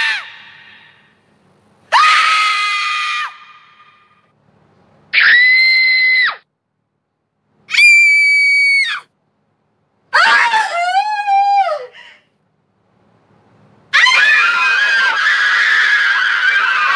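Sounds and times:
woman screaming: 1.9s - 4.0s, 10.1s - 12.0s, 13.9s - 16.9s.

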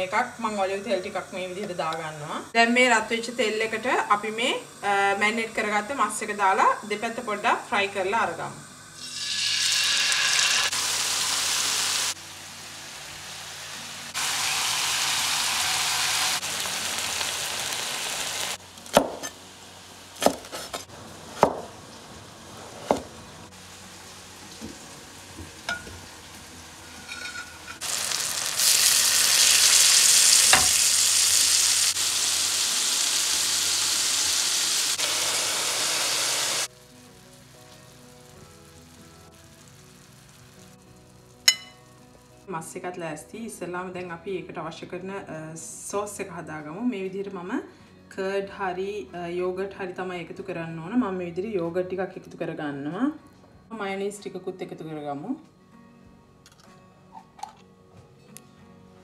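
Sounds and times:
chicken sizzling in frying pan: 9.0s - 20.2s, 21.1s - 42.0s
knife strikes on cutting board: 18.9s - 19.4s, 20.2s - 21.7s.

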